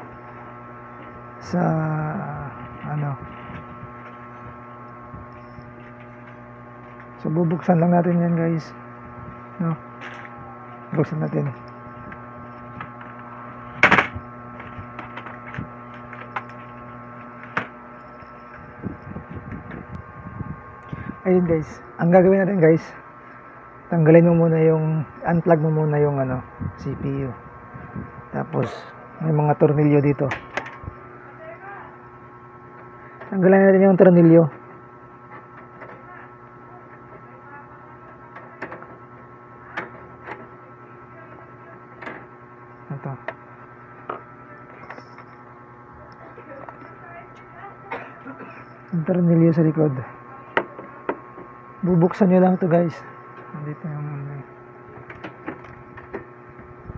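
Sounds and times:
electrical mains hum: 0.0 - 56.9.

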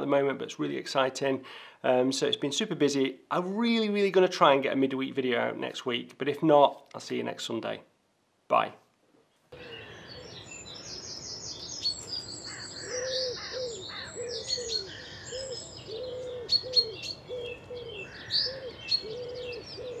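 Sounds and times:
small birds chirping: 9.3 - 20.0
pigeon cooing: 12.5 - 20.0.

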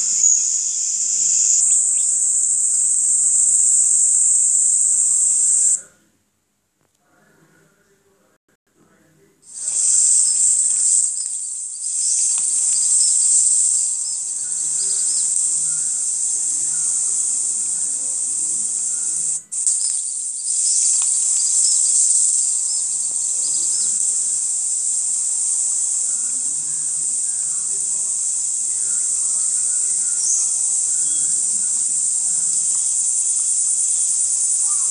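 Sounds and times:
high-pitched insect chorus: 0.0 - 6.0, 9.5 - 34.9.

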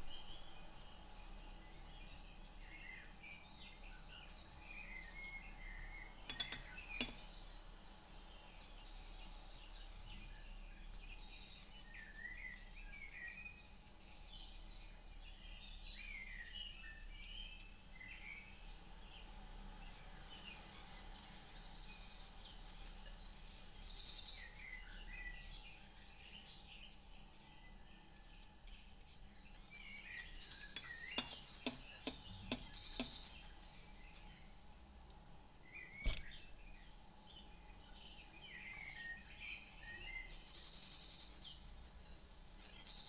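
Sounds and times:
songbirds chirping and trilling: 0.0 - 43.0.

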